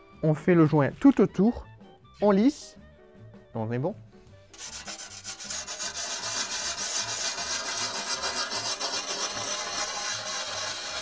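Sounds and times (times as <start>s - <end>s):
sanding stone rasping on glass: 4.5s - 11.0s.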